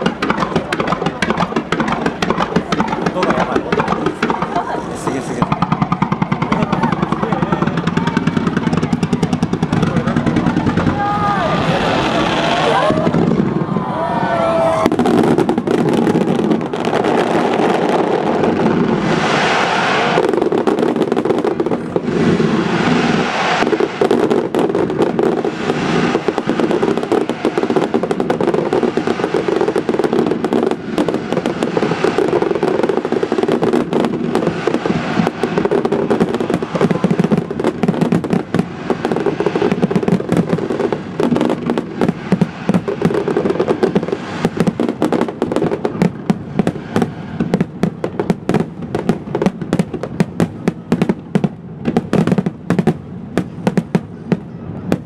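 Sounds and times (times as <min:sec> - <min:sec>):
fireworks bursts and crackling: 0:00.0 - 0:55.0
whistling firework shell: 0:18.7 - 0:20.7, 0:21.8 - 0:24.5.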